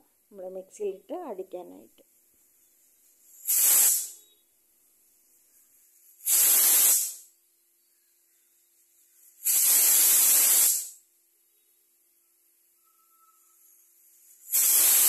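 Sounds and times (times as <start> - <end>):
pressure cooker steam hissing: 3.4 - 4.4, 6.2 - 7.2, 9.3 - 11.0, 13.6 - 15.0.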